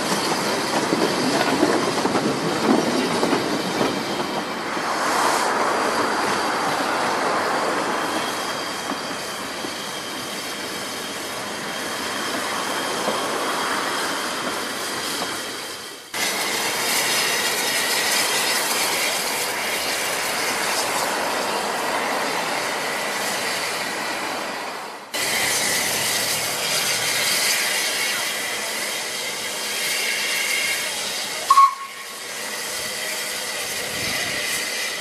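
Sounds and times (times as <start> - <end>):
steam locomotive hissing: 0.0 - 35.0
steam whistle toot: 30.0 - 32.4.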